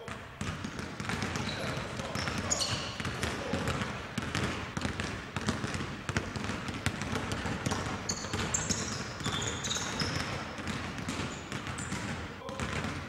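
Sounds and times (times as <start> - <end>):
sneaker squeaks: 0.0 - 4.5, 7.0 - 12.9
basketballs dribbling on court: 0.0 - 13.0.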